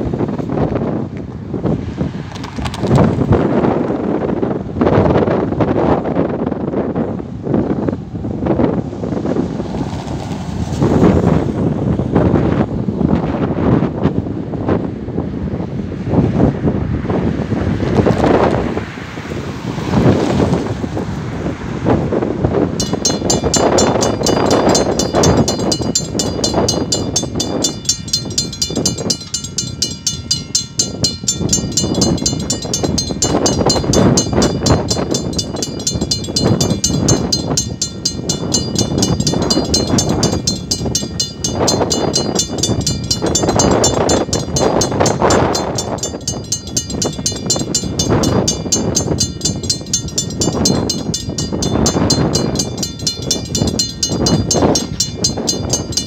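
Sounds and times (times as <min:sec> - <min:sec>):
wind buffeting microphone: 0:00.0 - 0:56.0
level-crossing warning bell ringing: 0:22.7 - 0:56.0.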